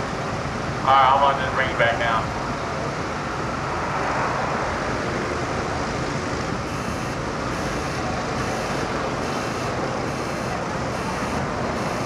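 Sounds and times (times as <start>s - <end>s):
faint high-pitched beep: 6.7s - 12.0s.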